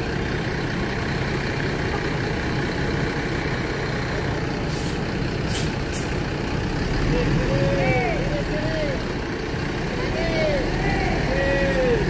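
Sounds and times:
bus diesel engine running: 0.0s - 12.0s
air brake hisses: 4.7s - 6.1s.

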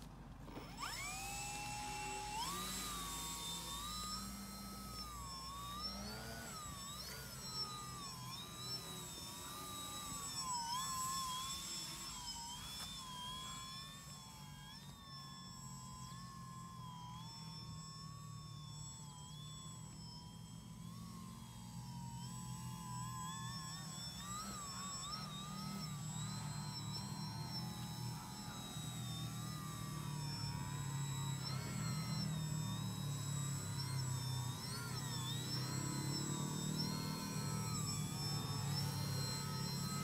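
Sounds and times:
model plane motor whine: 0.0s - 40.0s.

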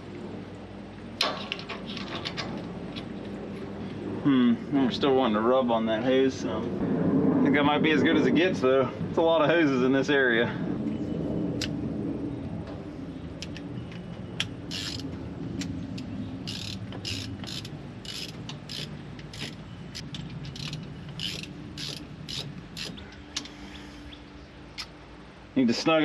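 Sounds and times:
wrench ratcheting: 14.7s - 15.0s, 16.5s - 23.0s.

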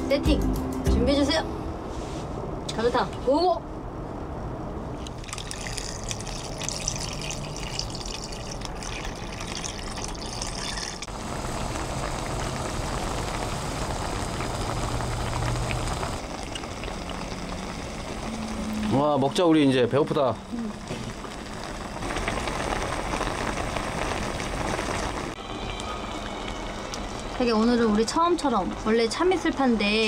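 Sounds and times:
broth pouring and splashing: 5.0s - 27.8s.

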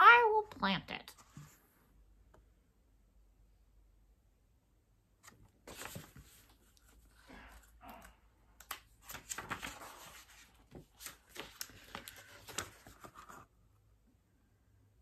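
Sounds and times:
paper pages rustling: 5.2s - 13.5s.

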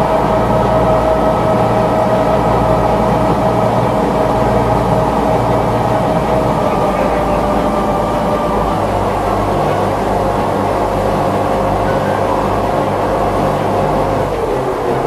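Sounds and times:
boat engines droning: 0.0s - 15.0s
steady humming tone: 0.0s - 15.0s.

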